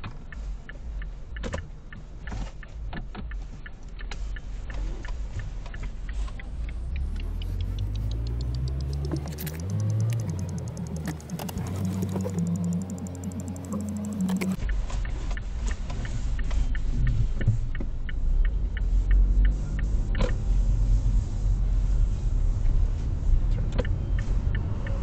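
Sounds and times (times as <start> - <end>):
turn-signal indicator clicking: 0.0 - 19.2
car engine revving: 4.3 - 25.0.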